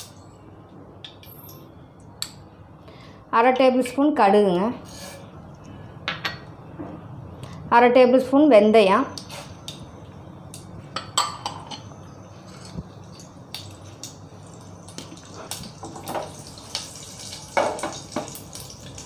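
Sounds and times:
seeds sizzling in oil: 0:13.1 - 0:19.0.

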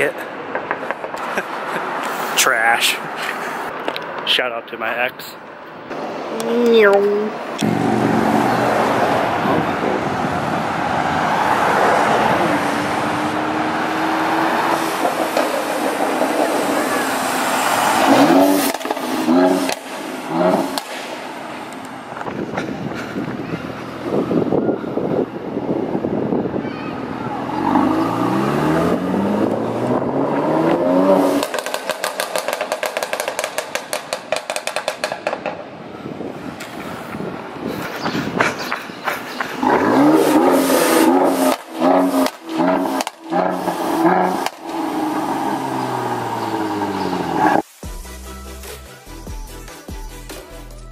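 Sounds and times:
cars driving past: 0:00.0 - 0:47.7
exhaust crackles and pops: 0:18.6 - 0:20.0, 0:31.4 - 0:35.6, 0:41.1 - 0:44.8.

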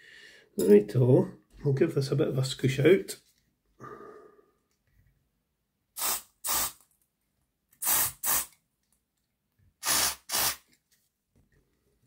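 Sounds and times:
aerosol spray hissing: 0:06.0 - 0:06.8, 0:07.8 - 0:08.6, 0:09.8 - 0:10.6.

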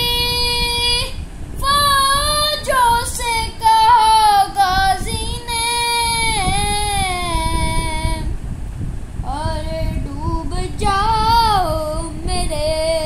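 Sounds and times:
boy singing solo: 0:00.0 - 0:08.4.

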